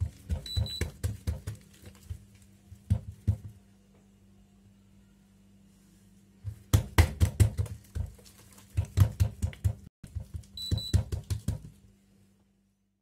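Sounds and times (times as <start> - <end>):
hands slapping dough: 0.0 - 3.6, 6.4 - 11.9
faint steady hum: 0.0 - 6.8.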